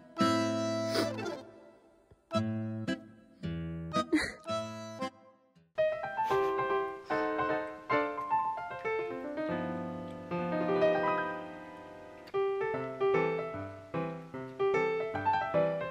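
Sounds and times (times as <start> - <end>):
light piano tune: 0.0 - 1.7, 5.8 - 15.9.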